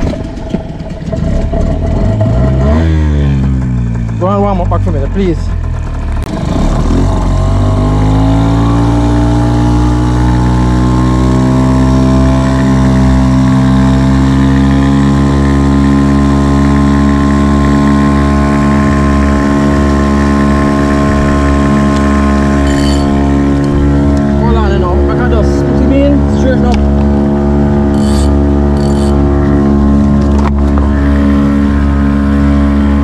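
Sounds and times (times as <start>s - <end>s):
outboard motor running: 0.0s - 33.0s.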